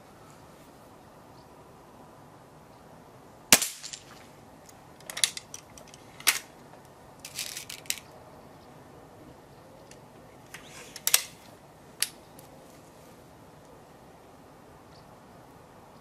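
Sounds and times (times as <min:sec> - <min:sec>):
air rifle shot: 0:03.5 - 0:04.1
metallic clicks and rattles: 0:05.0 - 0:06.5, 0:07.2 - 0:08.1.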